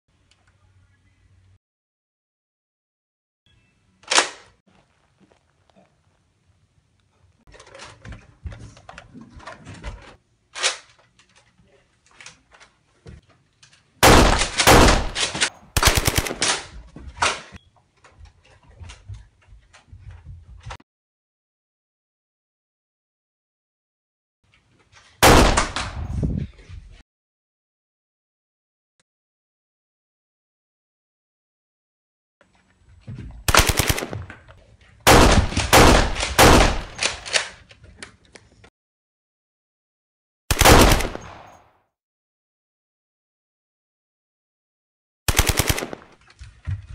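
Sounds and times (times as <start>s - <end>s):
rapid toy blaster gunfire: 14.0s - 16.6s, 33.5s - 34.2s, 40.5s - 41.5s, 45.3s - 46.1s.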